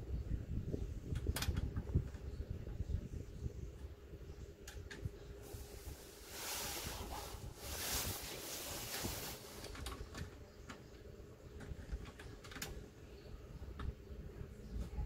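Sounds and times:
scraping rustle: 5.4 - 10.3.

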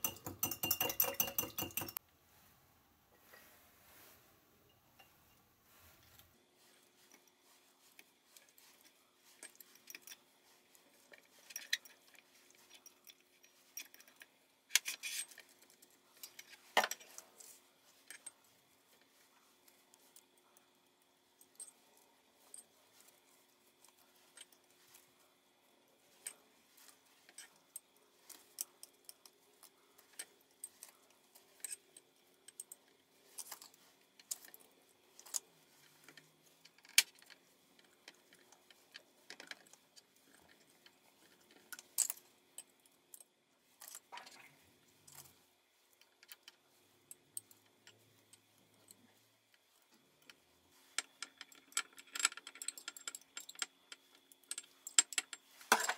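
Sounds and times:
chopsticks clicking on glass jar: 0.0 - 2.0.

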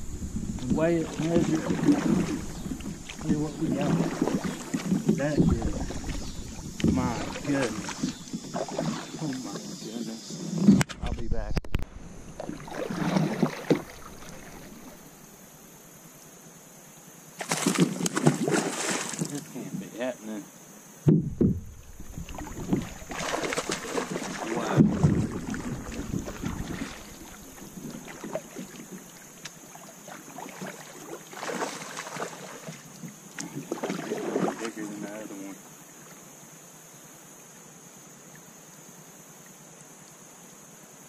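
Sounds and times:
faint steady hiss: 0.0 - 41.0
river water noise: 0.0 - 41.0
knocks on kayak: 0.4 - 8.9, 21.0 - 28.2.

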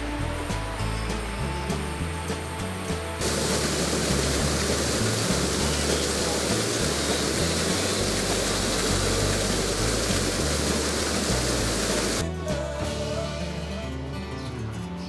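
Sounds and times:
background music bass: 0.0 - 15.0
waterfall roaring: 3.2 - 12.2.

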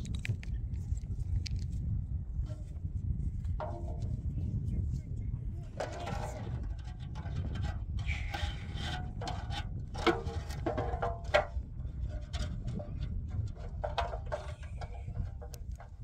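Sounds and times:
steady low rumble: 0.0 - 16.0
cloth scraping inside metal basin: 5.7 - 15.5.

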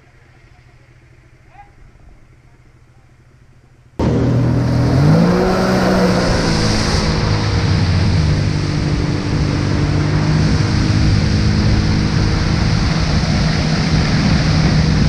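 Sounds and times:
jet ski engine accelerating: 4.0 - 15.0.

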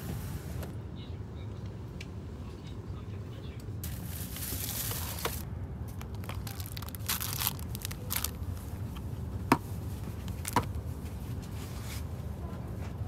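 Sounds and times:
train carriage low hum: 0.0 - 13.0
food packaging rustling and crinkling: 3.8 - 8.9, 10.1 - 12.0.

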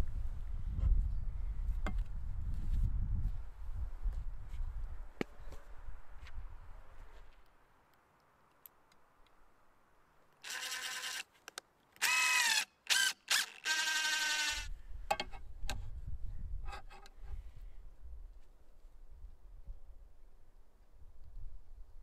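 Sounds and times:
impact driver driving screw: 10.5 - 11.2, 12.0 - 14.6.

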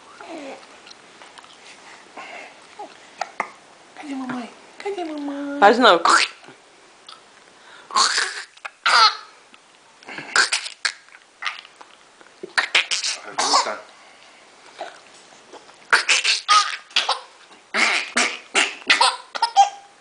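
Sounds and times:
toddler giggling: 18.9 - 19.9.

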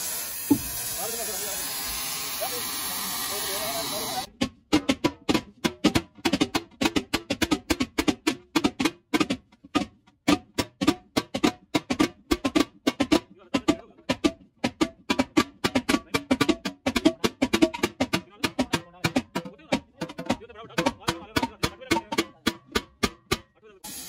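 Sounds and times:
hammer beating metal pot: 13.7 - 23.5.

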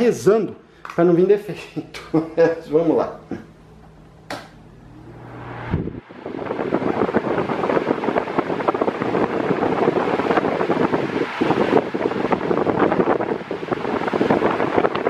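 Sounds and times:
air rush buffeting microphone: 0.0 - 15.0
fan blades whooshing: 0.0 - 15.0
fan switch click: 3.8 - 4.6.

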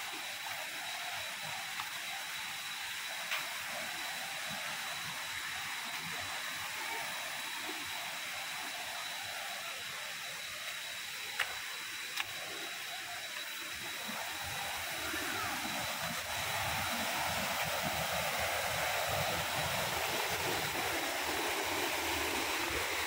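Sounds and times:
waterfall rushing over boulders: 0.0 - 23.0
thin high tone: 5.1 - 17.2.

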